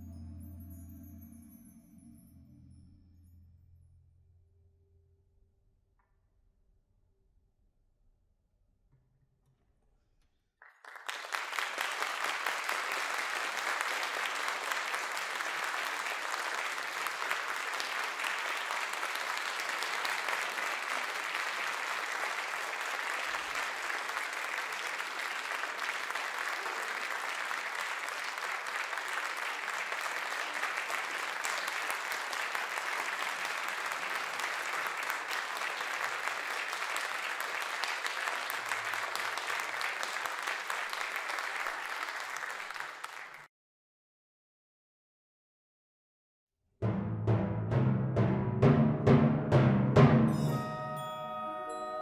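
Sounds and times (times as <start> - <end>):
audience applauding: 10.6 - 43.5.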